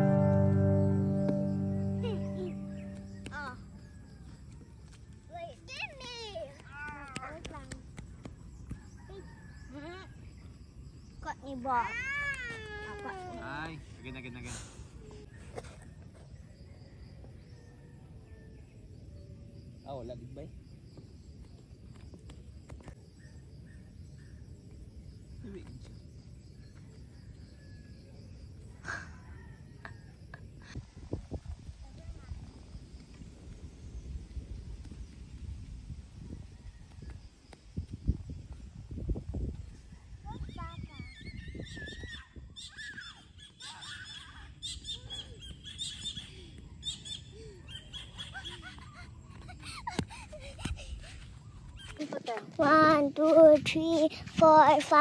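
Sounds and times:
birds chirping: 0.0 - 4.2, 40.3 - 53.0
faint insects chirping: 0.0 - 55.0.

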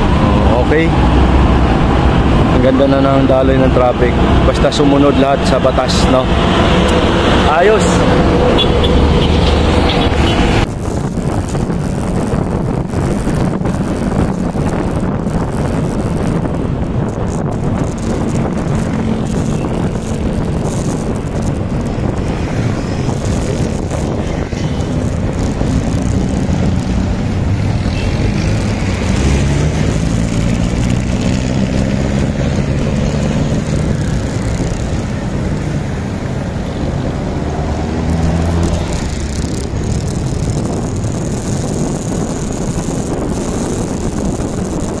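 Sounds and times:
wind rushing over microphone: 0.0 - 45.0.

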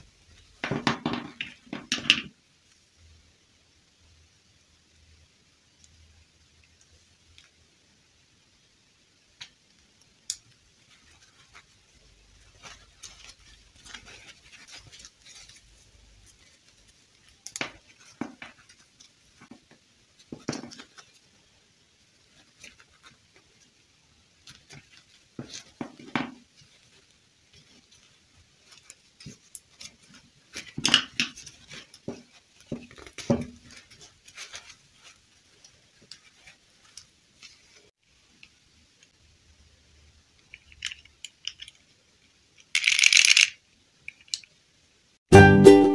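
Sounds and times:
plastic doll handling clicks and rustles: 9.4 - 21.3, 22.2 - 23.7, 24.4 - 39.1, 40.4 - 44.6.

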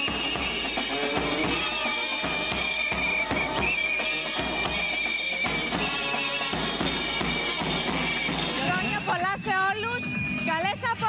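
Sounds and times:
steady drum beat: 0.0 - 9.8.

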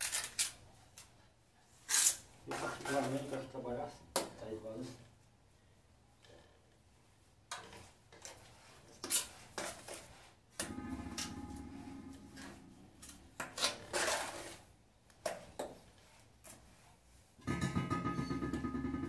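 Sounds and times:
steel trowel scraping and clacking: 9.0 - 14.7.

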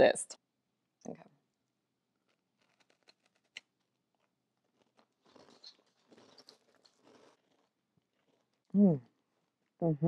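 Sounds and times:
cookie crunching and chewing: 2.1 - 9.8.

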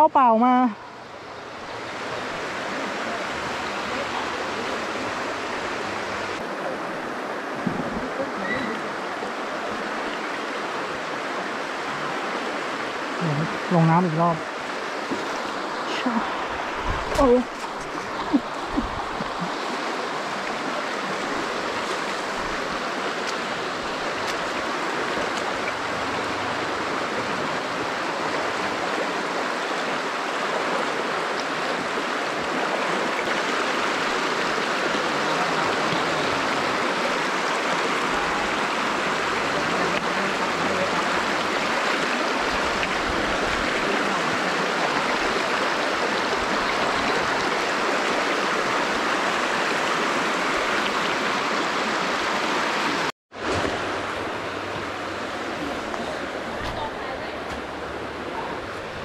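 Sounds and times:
stream water flowing: 0.0 - 59.0.

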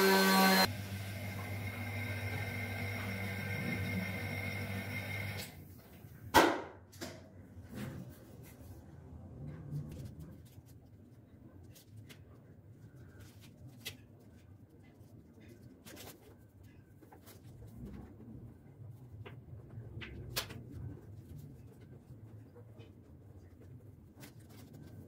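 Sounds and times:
steady mechanical hum: 0.0 - 6.3.

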